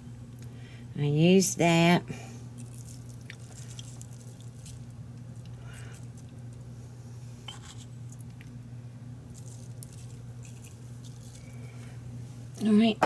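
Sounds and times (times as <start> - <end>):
steady low hum: 0.0 - 13.0
pepper ticking and rustling: 2.6 - 6.6, 9.3 - 11.6.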